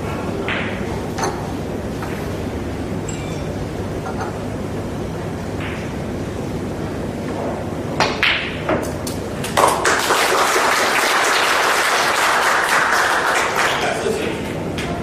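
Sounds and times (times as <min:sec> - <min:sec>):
audience applause: 0:09.6 - 0:14.2.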